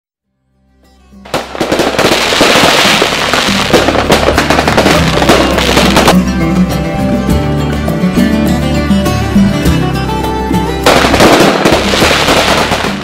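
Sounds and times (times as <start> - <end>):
background music: 0.3 - 13.0
fireworks crackling and popping: 1.3 - 6.3, 10.8 - 13.0.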